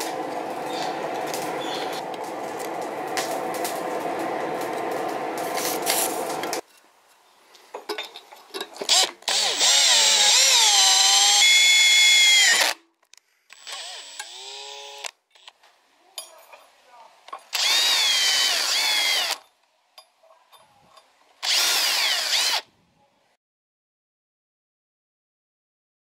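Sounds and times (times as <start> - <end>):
electric drill screeching through steel: 8.9 - 12.8, 13.5 - 15.5, 17.5 - 19.4, 21.4 - 22.7.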